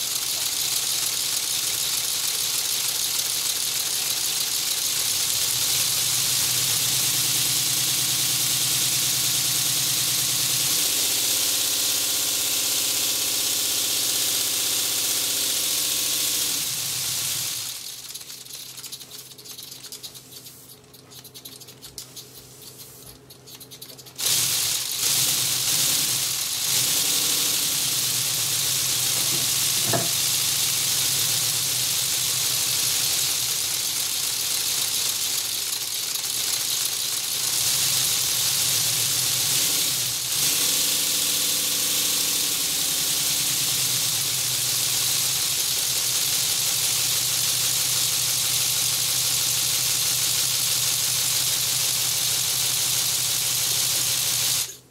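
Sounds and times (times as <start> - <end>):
plastic pistons rattling: 0.0 - 10.0, 16.1 - 40.3, 43.5 - 54.8
compressed air hissing: 24.1 - 34.8.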